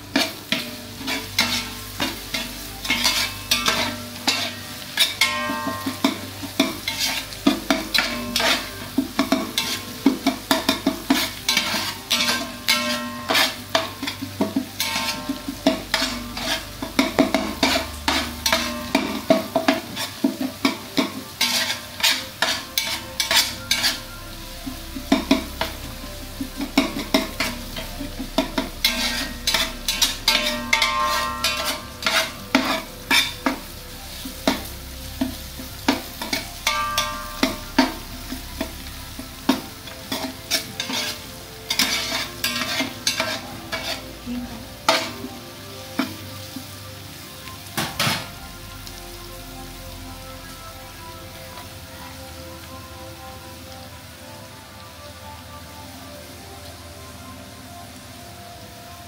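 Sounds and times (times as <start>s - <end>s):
food sizzling in oil: 0.0s - 59.0s
metal spatula scraping a pot: 0.1s - 44.1s.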